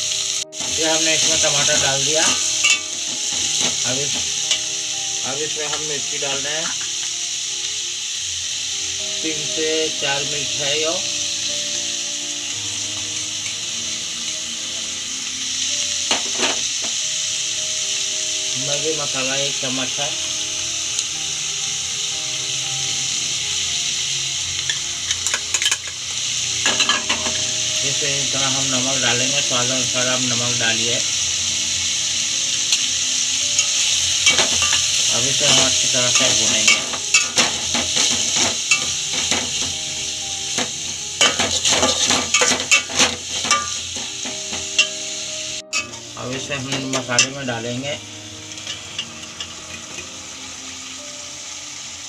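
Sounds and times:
vegetables sizzling in oil: 0.0 - 52.0
metal spatula scraping a pot: 33.6 - 39.7, 40.6 - 44.1.

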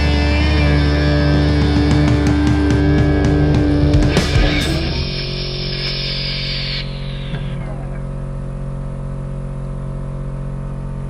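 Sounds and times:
background music: 0.0 - 5.4
air compressor droning: 0.0 - 11.0.

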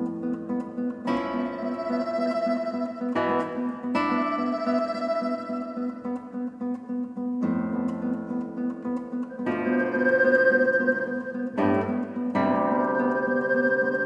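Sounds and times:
classical guitar duo: 0.0 - 14.0.

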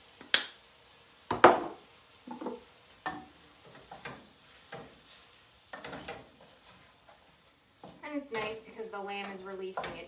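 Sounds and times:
utensils scraping a skillet: 2.3 - 10.0.

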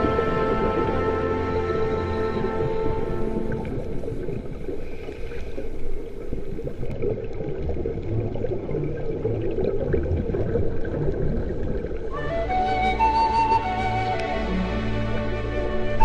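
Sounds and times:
crackly bubbling: 0.0 - 12.5
low underwater rumbles: 0.0 - 14.4
muffled underwater rush: 0.0 - 16.0.

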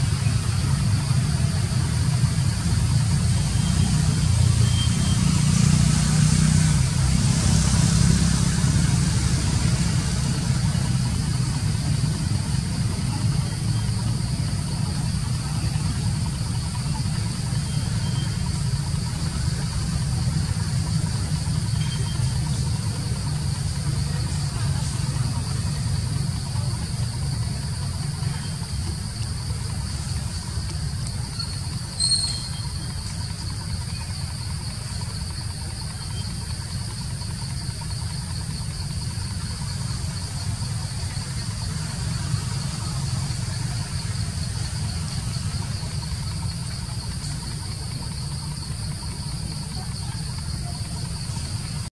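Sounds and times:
high-pitched insect drone: 0.1 - 51.9
short chirp: 32.0 - 32.6.

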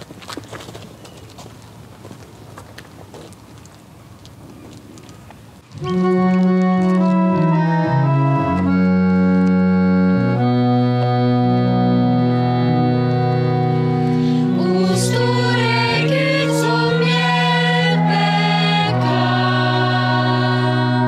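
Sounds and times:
reed organ playing hymn chords: 5.7 - 21.0.

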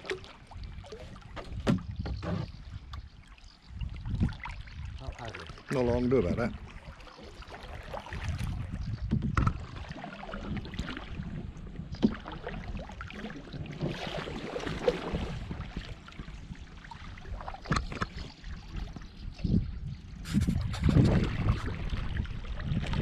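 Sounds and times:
water dripping from paddle: 0.0 - 1.5
paddle splashing in water: 0.0 - 19.6, 20.2 - 23.0
wind rumbling on microphone: 0.0 - 23.0.

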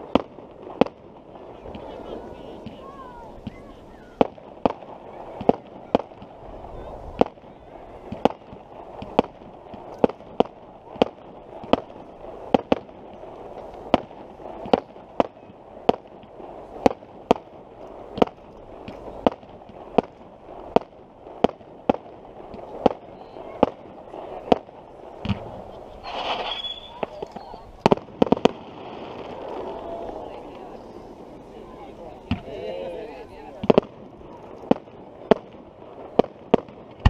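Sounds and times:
firework shells bursting: 0.0 - 32.6, 33.2 - 37.0.

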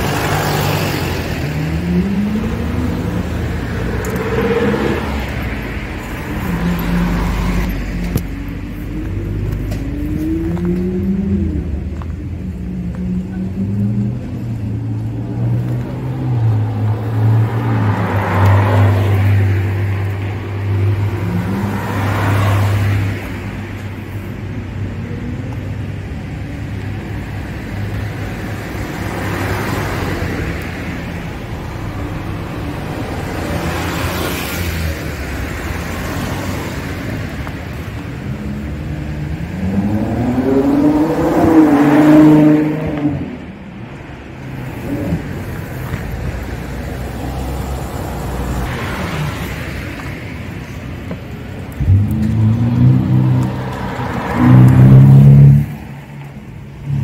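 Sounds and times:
cars passing: 0.0 - 57.0
sports car accelerating past: 39.4 - 43.4.

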